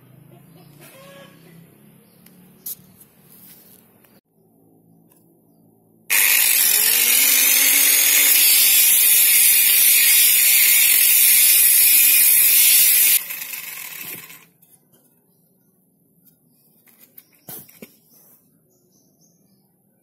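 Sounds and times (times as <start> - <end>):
electric disc sander on wood: 6.1 - 14.4.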